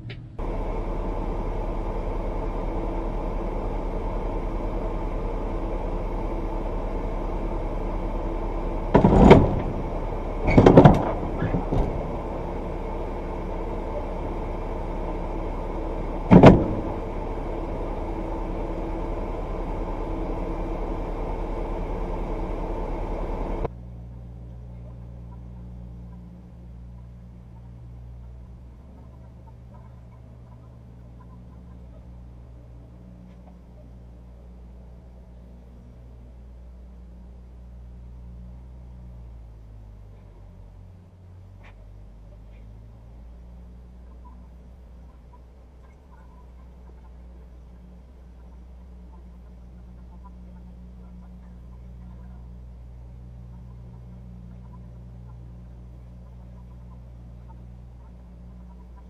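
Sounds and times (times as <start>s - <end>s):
truck engine idling: 0.0s - 59.0s
loud noisy engine bursts: 0.4s - 33.2s.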